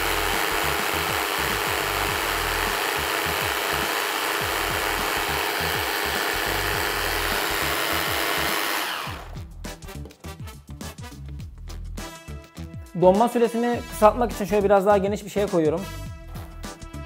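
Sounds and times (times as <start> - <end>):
hand blender running: 0.0 - 9.4.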